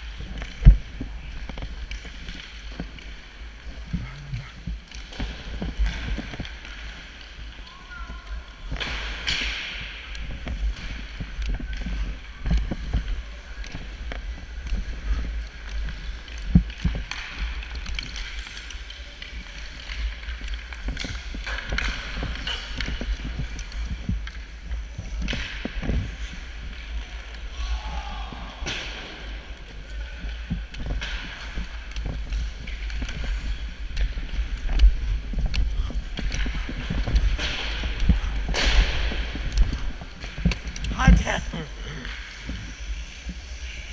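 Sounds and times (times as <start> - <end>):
steady low rumble: 0.0 - 7.5.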